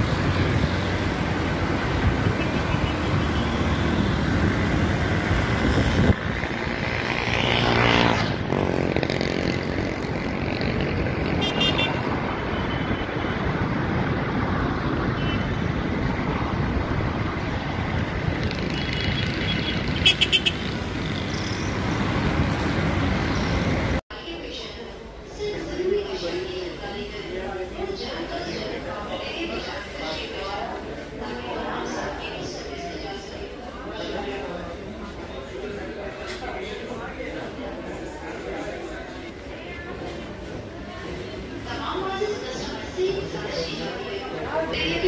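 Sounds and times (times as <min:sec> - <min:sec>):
road traffic: 0:00.0 - 0:45.0
car horn toots: 0:20.0 - 0:20.7.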